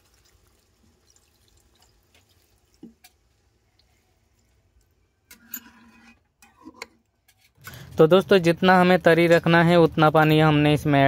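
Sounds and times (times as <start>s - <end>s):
water dripping and trickling into pan: 0.0s - 5.4s.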